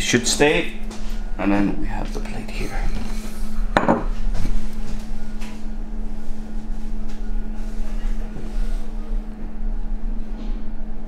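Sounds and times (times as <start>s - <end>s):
low mechanical hum: 0.0s - 11.0s.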